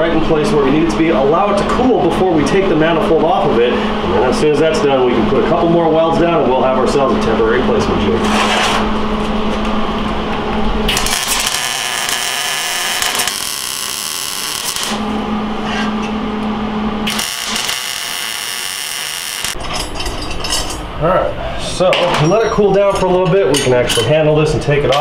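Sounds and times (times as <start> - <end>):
steady low hum: 0.0 - 25.0
welding arc crackle: 10.9 - 15.2, 17.0 - 19.6.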